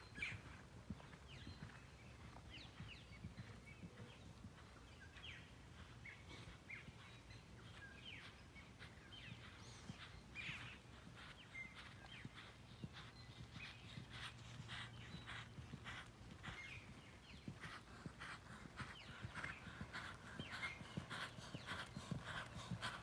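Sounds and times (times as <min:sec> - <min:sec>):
birds chirping and whistling: 0:18.8 - 0:23.0.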